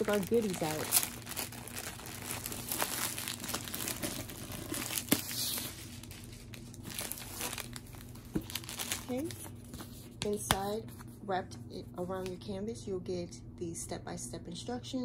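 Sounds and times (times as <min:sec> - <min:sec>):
sharp plastic crackles: 0:00.0 - 0:05.6, 0:06.3 - 0:09.6
plastic packaging crinkling: 0:00.0 - 0:10.0.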